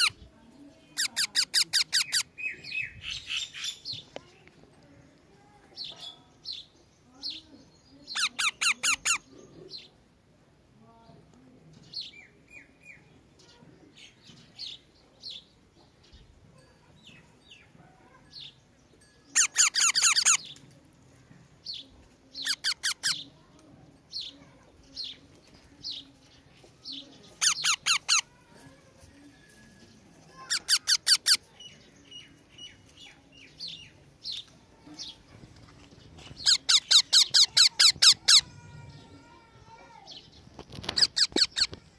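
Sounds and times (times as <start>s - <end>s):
parakeet chick begging calls: 1.0s - 3.9s, 8.1s - 9.3s, 19.3s - 20.6s, 22.3s - 23.2s, 27.4s - 28.4s, 30.4s - 31.7s, 36.3s - 38.6s, 40.5s - 41.8s
single chirps and squeaks: 19.3s - 20.6s, 27.4s - 28.3s, 30.4s - 31.4s, 36.3s - 38.4s, 40.5s - 41.9s.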